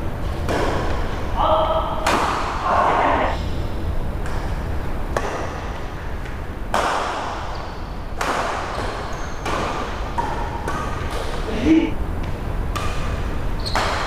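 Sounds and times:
rackets hitting shuttlecock: 2.0s - 2.6s, 6.7s - 7.5s, 8.1s - 11.4s, 12.7s - 14.0s.

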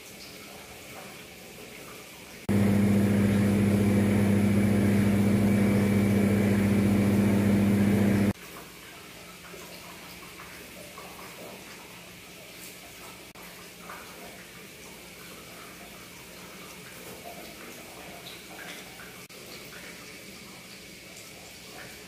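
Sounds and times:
loud machine hum: 2.5s - 8.4s.

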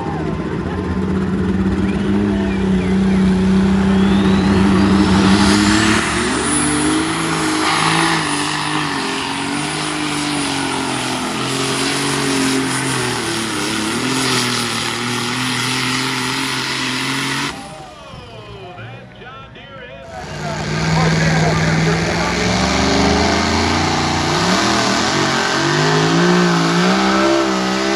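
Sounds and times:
tractor engine at full throttle: 0.0s - 27.9s
high whine rising in pitch: 2.4s - 9.4s.

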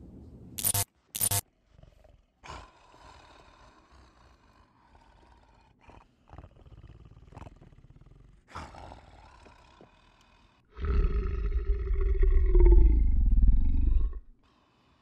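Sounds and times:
monster growl: 2.4s - 14.3s
deep monster roar: 10.7s - 14.3s.

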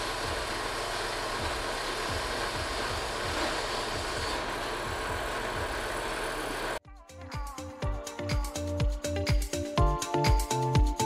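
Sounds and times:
bandsaw cutting metal tubing: 0.0s - 6.8s
motor humming: 0.0s - 6.8s.

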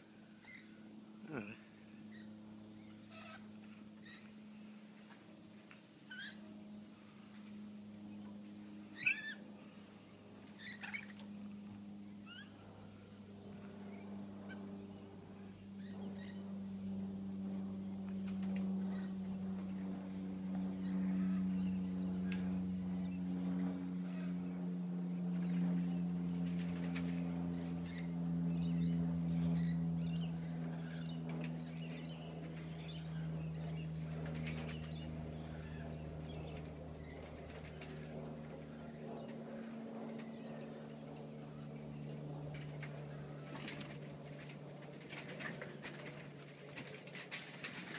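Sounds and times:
low mechanical drone: 0.0s - 47.9s
parrots squawking and chirping: 3.1s - 3.4s.

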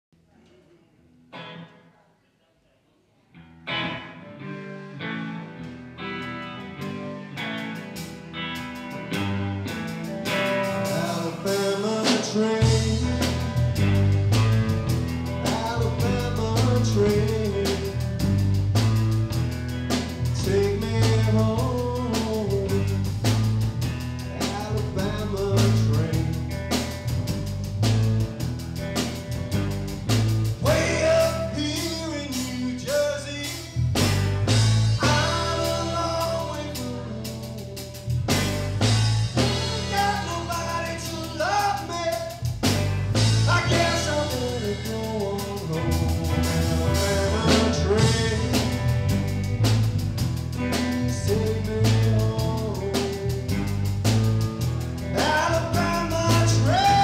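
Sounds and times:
electric guitar: 1.2s - 1.9s, 3.3s - 57.0s
drum kit: 5.5s - 57.0s
man singing: 10.6s - 14.1s, 15.3s - 18.6s, 20.2s - 23.5s, 24.2s - 27.0s, 30.6s - 34.1s, 34.9s - 38.2s, 39.4s - 42.6s, 43.2s - 49.6s, 50.6s - 54.2s, 55.1s - 57.0s
pulsing bass line: 12.6s - 31.8s, 33.8s - 41.7s, 42.4s - 57.0s.

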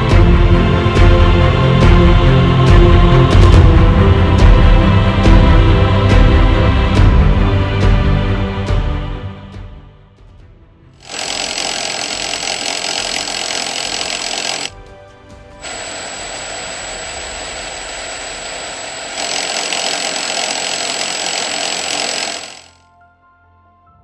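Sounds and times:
conveyor belt hissing: 15.6s - 22.8s
thin high whine: 15.6s - 22.8s.

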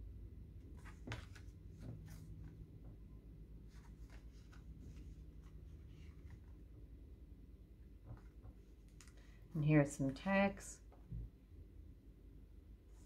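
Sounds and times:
paper rustling: 0.7s - 2.6s, 3.7s - 6.6s.

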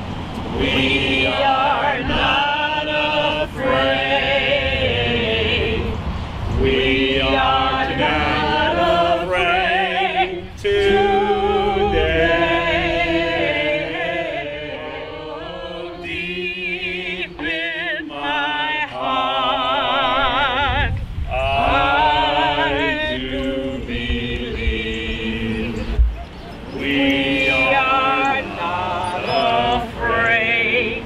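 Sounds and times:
person singing with vibrato: 6.6s - 26.0s.

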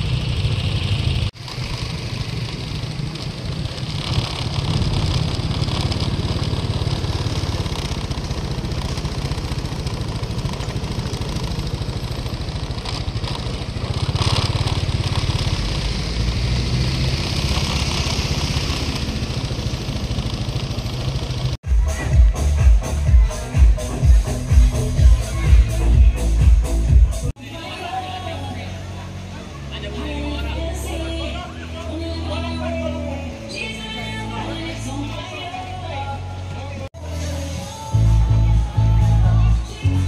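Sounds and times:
motorcycle engine running: 0.0s - 27.4s.

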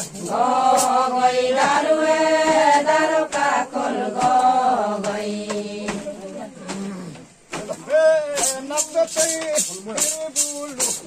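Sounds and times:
group chanting: 0.0s - 7.2s.

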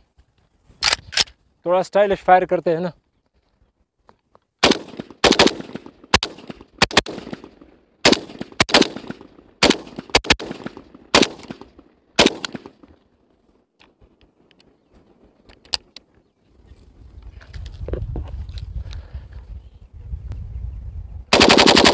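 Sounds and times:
rifle shots echoing: 4.6s - 12.9s, 21.3s - 21.9s.

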